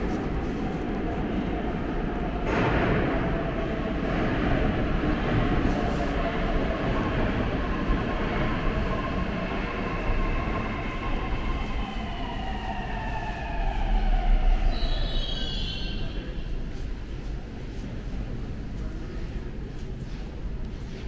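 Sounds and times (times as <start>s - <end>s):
train rumble: 0.0s - 21.0s
metro train braking whine: 9.3s - 16.7s.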